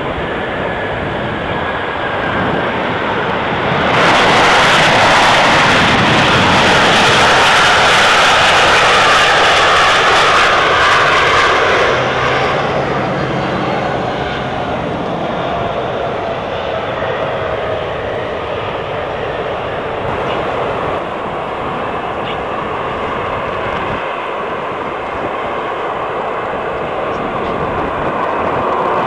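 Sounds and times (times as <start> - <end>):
falling whine of engines: 0.0 - 29.0
jet engines roaring: 0.0 - 29.0.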